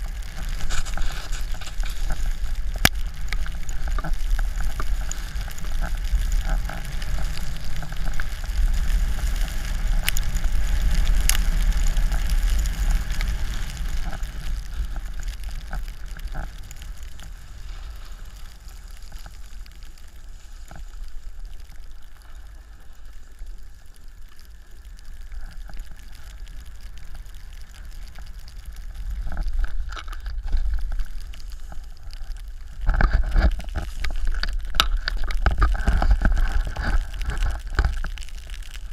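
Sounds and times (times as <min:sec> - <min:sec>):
snowboard scraping snow: 0:00.0 - 0:23.2, 0:32.6 - 0:34.3.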